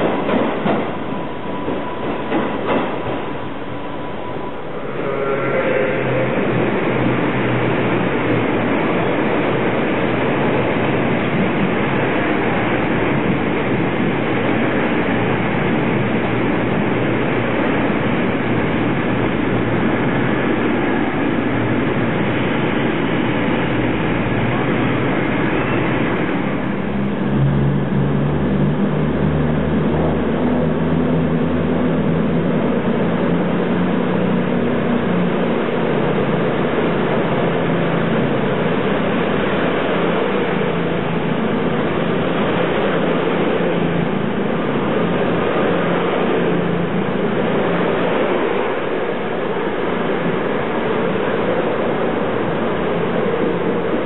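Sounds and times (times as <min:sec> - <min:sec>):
diesel train passing: 0:00.0 - 0:54.0
low engine drone: 0:00.0 - 0:54.0.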